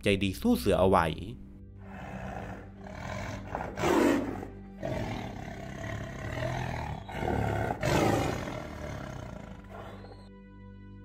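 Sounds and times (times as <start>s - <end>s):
low droning music: 0.0s - 11.0s
tiger roaring: 1.8s - 10.3s.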